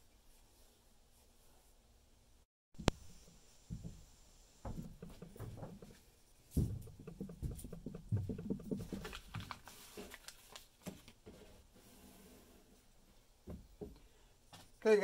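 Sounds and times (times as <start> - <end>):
small knocks: 2.8 - 9.6
plastic bag crinkling: 8.5 - 10.8.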